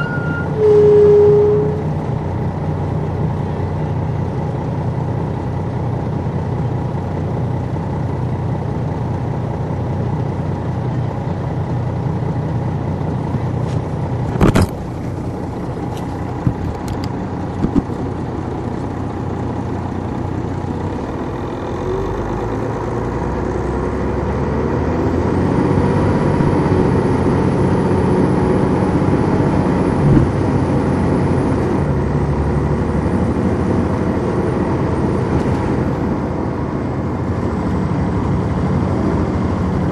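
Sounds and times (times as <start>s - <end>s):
bus diesel engine running: 0.0s - 39.9s
sharp knock: 30.0s - 30.4s.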